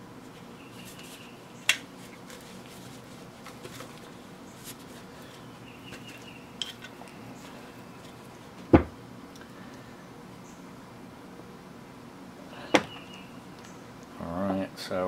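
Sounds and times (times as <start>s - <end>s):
gloved hands rubbing and squeaking: 0.3s - 8.5s.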